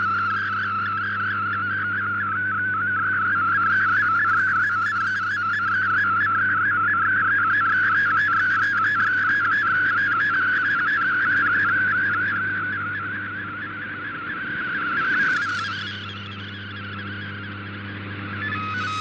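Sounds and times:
warbling digital radio tone: 10.6 - 19.0.

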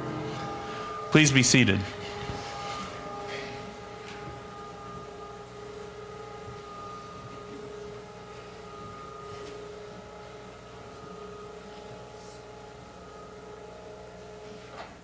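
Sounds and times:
low electrical hum: 0.0 - 15.0
steady held tone: 0.0 - 15.0.

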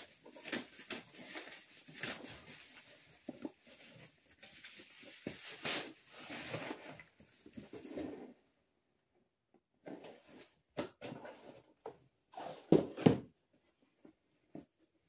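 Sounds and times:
bubble wrap crinkling and crackling: 0.0 - 7.2.

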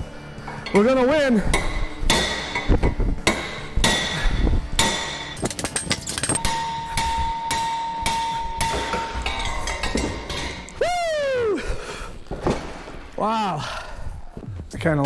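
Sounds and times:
steel hammer blows on metal: 6.4 - 10.7.

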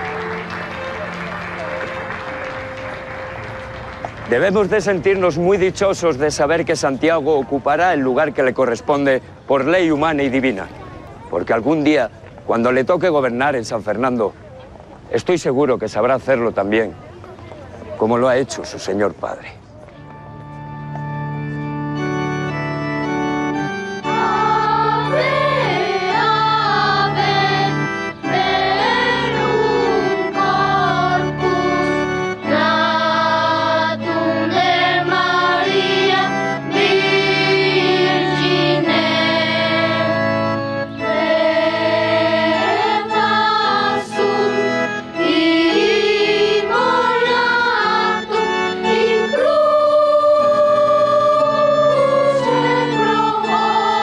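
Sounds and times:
children's choir singing: 0.0 - 3.8, 23.5 - 54.0.

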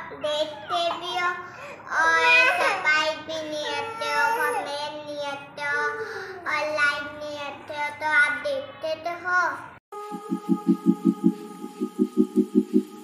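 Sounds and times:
girl singing: 0.0 - 8.0, 10.0 - 12.7.

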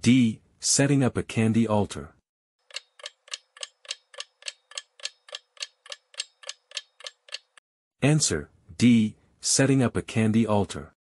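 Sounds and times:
clock ticking: 2.6 - 7.6.

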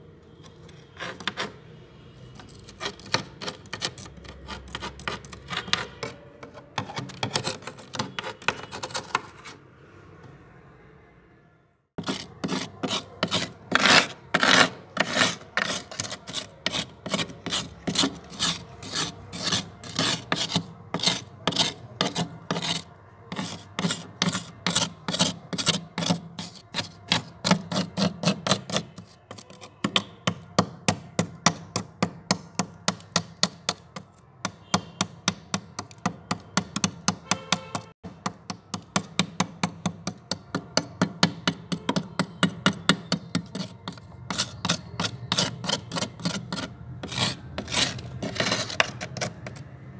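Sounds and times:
metal spoon scraping frost: 0.4 - 1.6, 2.2 - 9.6, 12.0 - 32.1, 40.0 - 49.7.

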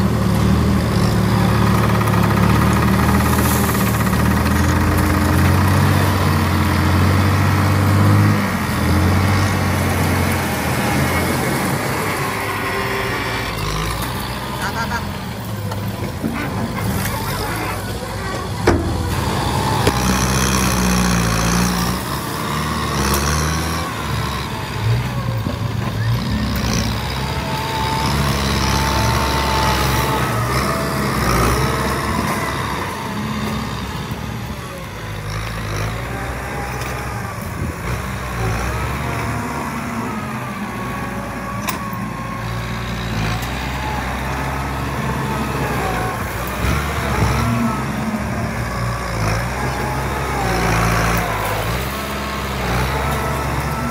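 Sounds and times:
dump truck diesel engine: 0.0 - 53.9
tractor engine pushing soil: 0.0 - 53.9.

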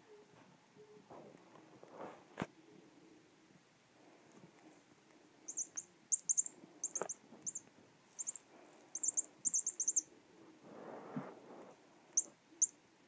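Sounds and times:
electronic bird toy chirping: 5.5 - 7.6, 8.2 - 10.1, 12.2 - 12.8.

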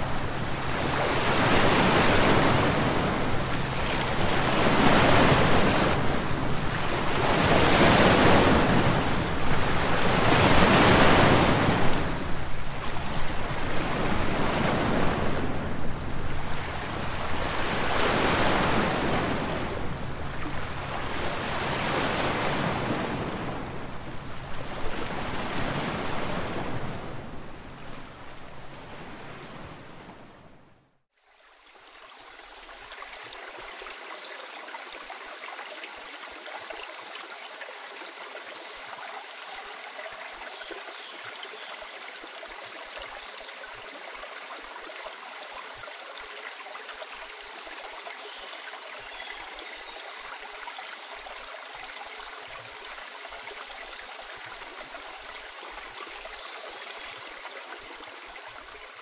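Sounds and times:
sea waves washing in: 0.0 - 30.8.

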